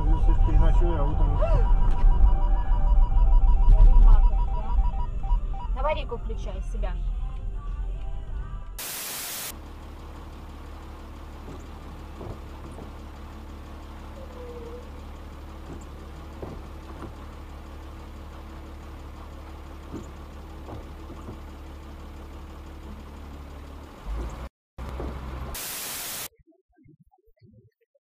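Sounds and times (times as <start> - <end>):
road and engine rumble: 0.0 - 26.3
burst of hiss: 8.8 - 9.5, 25.6 - 26.3.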